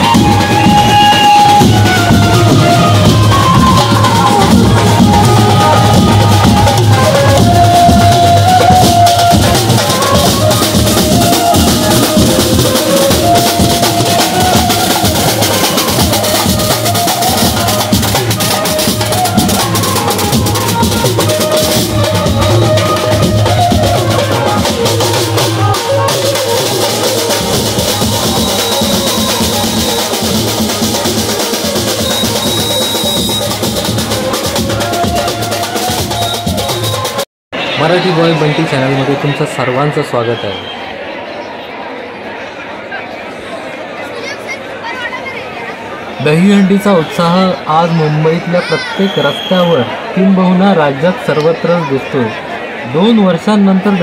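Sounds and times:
loud music with driving drum beat: 0:00.0 - 0:37.2.

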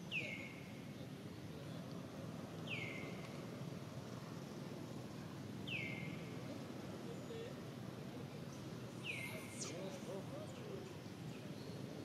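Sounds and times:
low steady background noise: 0:00.0 - 0:12.0
bird whistled call: 0:09.0 - 0:09.8.

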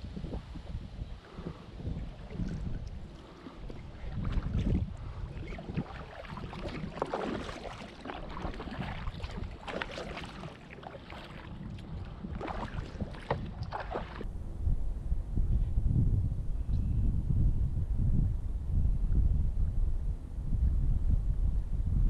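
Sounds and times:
wind rumble on microphone: 0:00.0 - 0:22.0
canoe paddle splashing in water: 0:01.3 - 0:14.3.

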